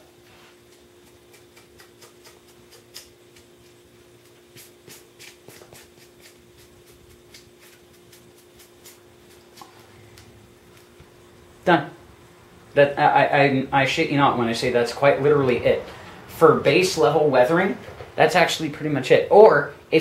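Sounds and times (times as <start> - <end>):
cloth rag rubbing foam: 4.5 - 9.8.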